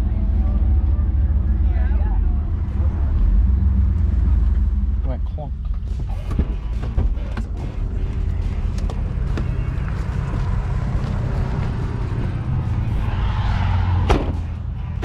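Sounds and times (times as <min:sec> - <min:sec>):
car engine and road rumble: 0:00.0 - 0:15.0
rising sweep: 0:09.0 - 0:14.9.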